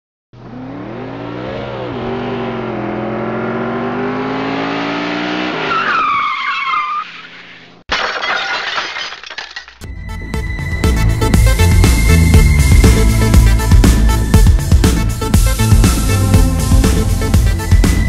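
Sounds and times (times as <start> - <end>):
engine revving: 0.4 - 5.7
tyres screeching: 5.5 - 7.8
car crash with clattering debris: 7.9 - 9.8.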